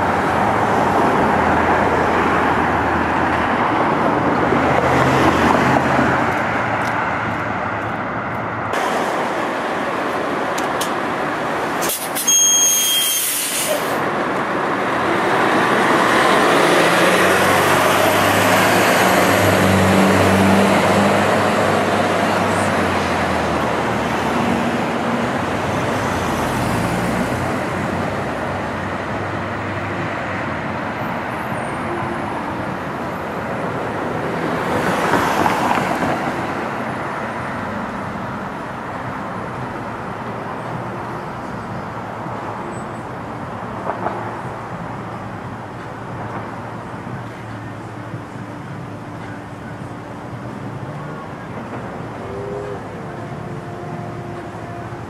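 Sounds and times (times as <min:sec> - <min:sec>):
car passing: 0:00.0 - 0:11.9, 0:13.8 - 0:39.0
bus engine droning: 0:00.0 - 0:34.8, 0:44.4 - 0:55.0
bus air brake hiss: 0:11.8 - 0:14.0.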